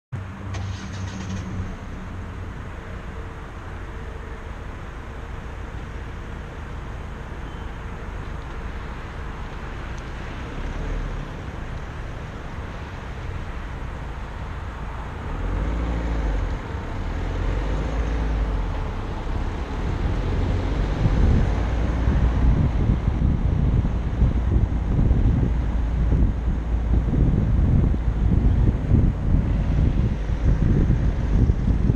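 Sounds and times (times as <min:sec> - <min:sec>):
car engine and road rumble: 0:00.1 - 0:31.9
wind buffeting microphone: 0:16.2 - 0:31.9.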